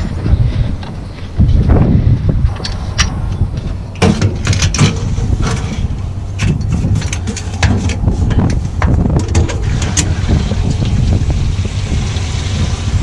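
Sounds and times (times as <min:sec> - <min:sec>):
low steady rumble: 0:00.0 - 0:13.0
metal clanks and clicks: 0:02.5 - 0:10.2.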